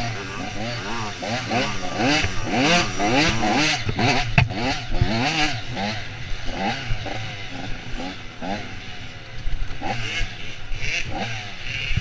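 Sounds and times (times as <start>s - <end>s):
dirt bike engine revving: 0.0s - 6.8s.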